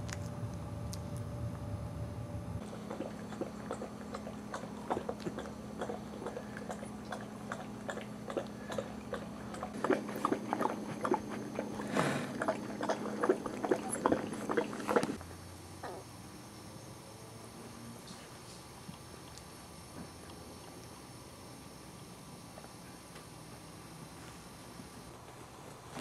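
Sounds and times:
steady low hum: 0.0s - 26.0s
puppies chewing and smacking: 2.6s - 15.2s, 18.4s - 21.1s.

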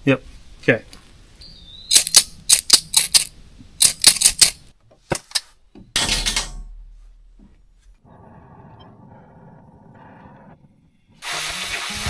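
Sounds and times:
sharp clicks: 1.9s - 4.6s
rushing hiss: 11.2s - 12.0s.

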